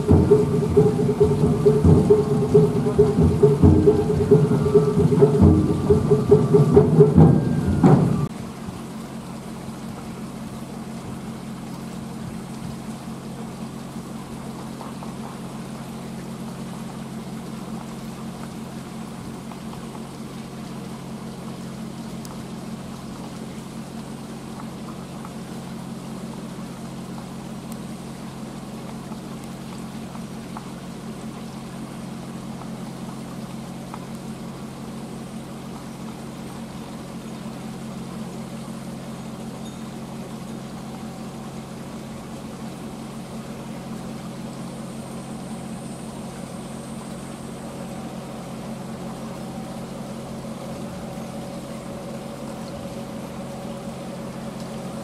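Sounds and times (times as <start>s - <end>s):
higher tone: 0.0s - 8.3s
locomotive mechanical drone: 0.0s - 19.3s, 36.4s - 55.0s.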